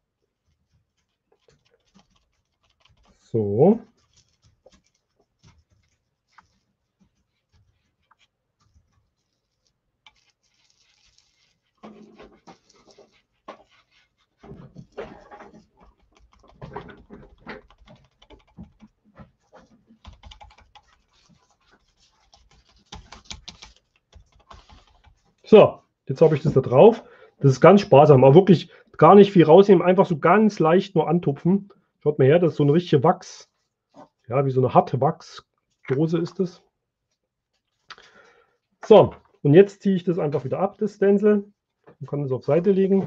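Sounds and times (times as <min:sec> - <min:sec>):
foam dome dabbing through stencil: 0:00.0 - 0:27.0.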